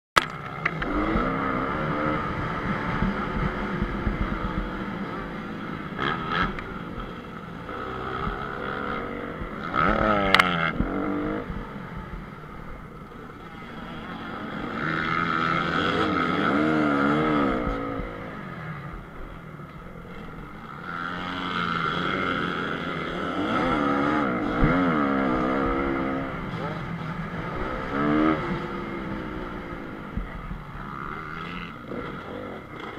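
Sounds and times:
motorcycle engine revving: 0:00.2 - 0:32.9.

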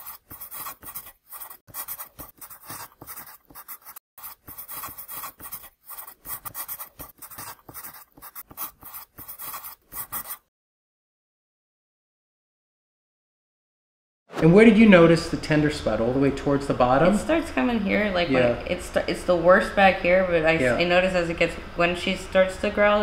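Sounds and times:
pen scribbling on paper: 0:00.0 - 0:10.5.

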